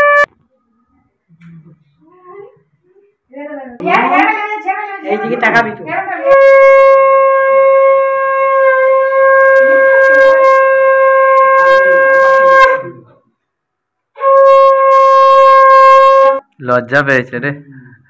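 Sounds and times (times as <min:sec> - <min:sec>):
conch shell blast: 0:00.0 - 0:00.3, 0:06.2 - 0:13.2, 0:14.1 - 0:16.5.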